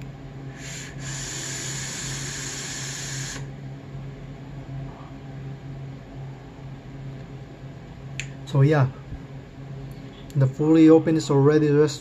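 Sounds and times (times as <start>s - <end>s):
airy hiss of air drawn through: 0.6s - 3.5s.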